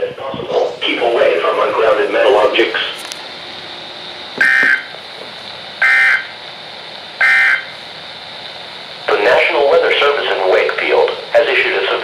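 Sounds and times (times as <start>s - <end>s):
warbling data bursts: 5.8s - 6.4s.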